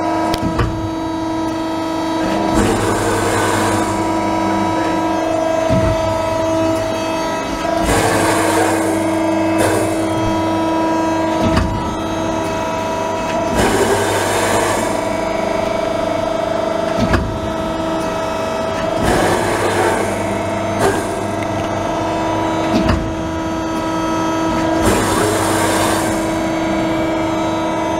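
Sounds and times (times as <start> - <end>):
machine hum: 0.0 - 27.9
motors whirring: 0.3 - 15.3
sharp machine clunks: 7.4 - 10.4.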